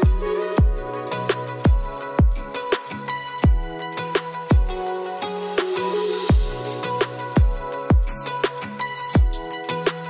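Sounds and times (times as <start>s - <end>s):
deep kick drum: 0.0s - 0.9s, 1.7s - 2.5s, 3.4s - 3.8s, 4.5s - 4.8s, 6.3s - 6.6s, 7.4s - 8.2s, 9.2s - 9.5s.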